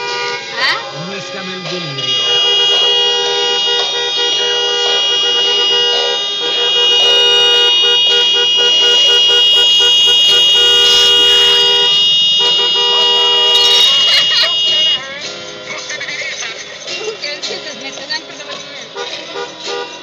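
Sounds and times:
car horns blaring: 0.0 - 20.0.

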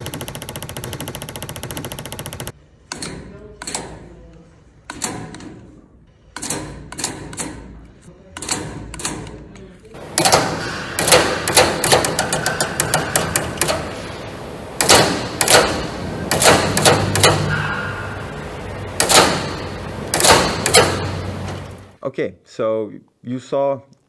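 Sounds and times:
heating valve knocking: 10.0 - 21.8.

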